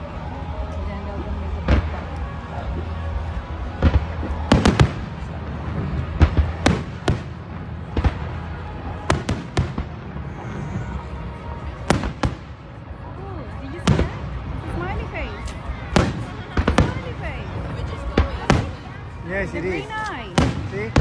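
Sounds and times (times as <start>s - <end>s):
fireworks bursting in sharp bangs: 3.7s - 10.4s, 11.8s - 12.6s, 13.8s - 15.0s, 15.9s - 19.0s, 20.2s - 21.0s.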